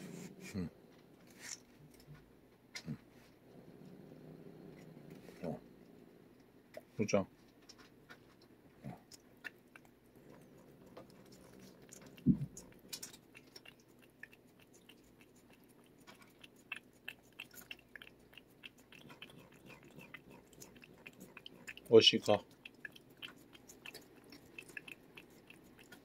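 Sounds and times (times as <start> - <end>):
cat licking wet tongue clicks: 9.1 - 26.0.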